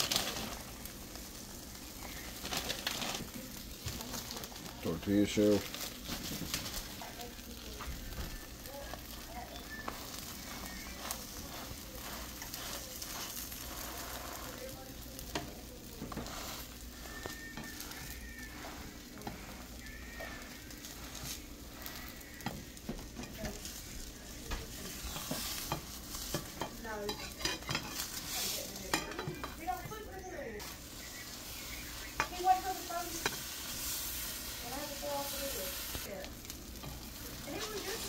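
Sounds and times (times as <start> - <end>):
eggs sizzling in a pan: 0.0 - 38.0
spatula scraping and knocking pan: 9.0 - 30.0, 31.6 - 36.0.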